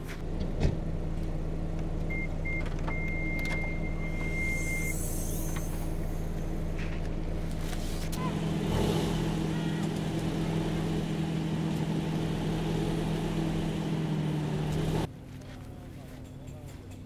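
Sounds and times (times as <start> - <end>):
car engine idling: 0.0 - 15.1
thin high tone: 4.1 - 6.5.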